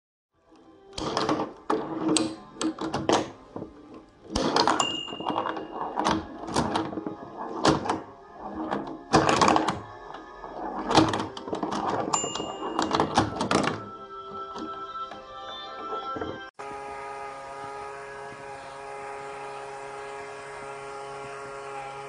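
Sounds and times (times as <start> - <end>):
plastic pinball clicks and knocks: 0.9 - 13.9
pinball sound effects: 1.0 - 15.0.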